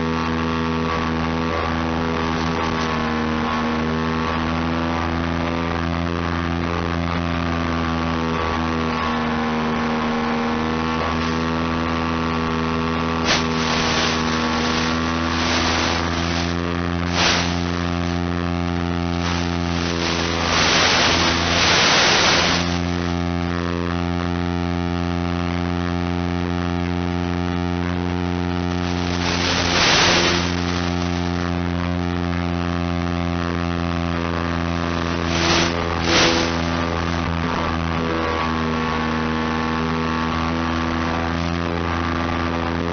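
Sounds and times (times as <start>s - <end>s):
steady hum: 0.0s - 42.9s
short bursts of hiss: 13.2s - 18.1s, 19.2s - 23.2s, 28.8s - 31.4s, 35.0s - 36.8s.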